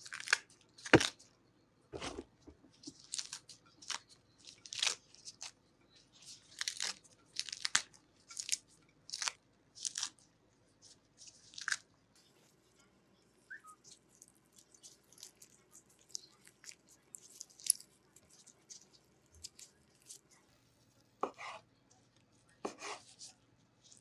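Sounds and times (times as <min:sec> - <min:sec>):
meat tearing and crackling: 0:00.0 - 0:01.2, 0:02.8 - 0:05.6, 0:06.4 - 0:10.2, 0:11.4 - 0:11.9, 0:13.6 - 0:20.4.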